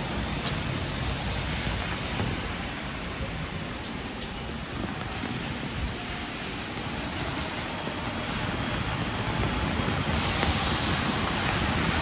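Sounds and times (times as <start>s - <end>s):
heavy rain on street: 0.0s - 12.0s.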